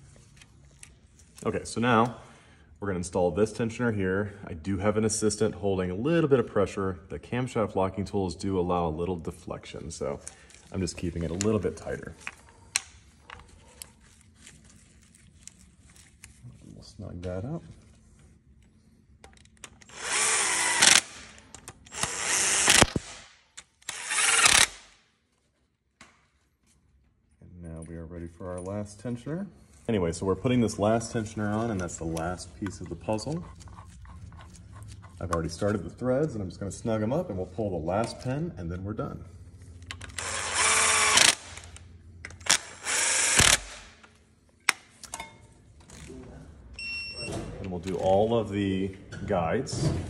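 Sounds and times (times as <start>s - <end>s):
power tool whirring: 19.8s - 23.2s, 23.8s - 24.9s, 39.9s - 44.0s.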